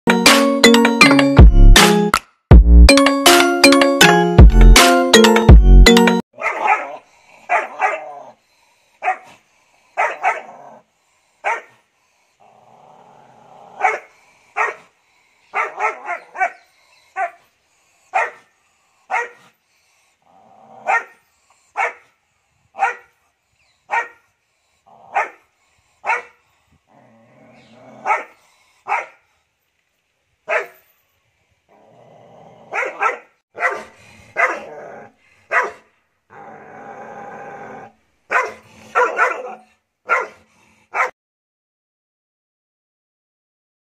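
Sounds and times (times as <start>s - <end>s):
puppy barking: 6.4s - 8.3s, 9.0s - 9.3s, 10.0s - 10.6s, 11.4s - 11.8s, 13.8s - 14.9s, 15.5s - 16.6s, 17.2s - 17.4s, 18.1s - 18.5s, 19.1s - 19.5s, 20.8s - 21.2s, 21.8s - 22.1s, 22.8s - 23.1s, 23.9s - 24.3s, 25.1s - 25.4s, 26.0s - 26.4s, 28.0s - 29.2s, 30.5s - 30.8s, 32.7s - 34.8s, 35.5s - 35.9s, 38.3s - 41.2s
puppy growling: 6.6s - 8.4s, 10.0s - 10.9s, 12.4s - 14.2s, 20.2s - 21.2s, 26.9s - 28.4s, 31.7s - 33.0s, 33.8s - 35.3s, 36.3s - 39.7s.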